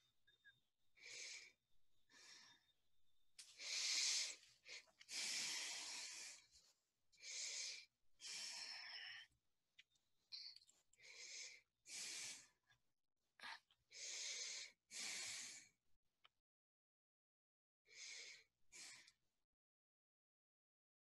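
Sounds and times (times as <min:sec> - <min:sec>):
person breathing: 0:01.0 - 0:02.7, 0:03.5 - 0:09.3, 0:11.0 - 0:12.6, 0:13.4 - 0:15.7, 0:17.9 - 0:19.2.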